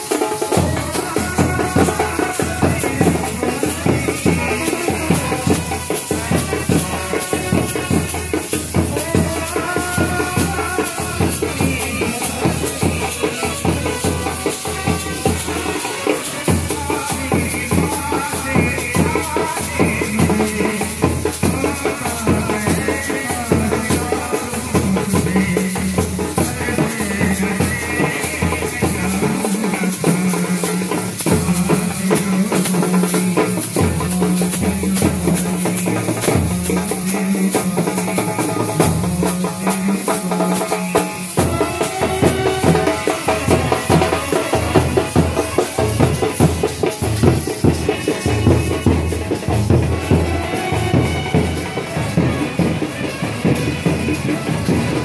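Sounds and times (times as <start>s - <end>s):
drumming and rattling percussion: 0.0s - 55.0s
brass band playing: 41.2s - 55.0s.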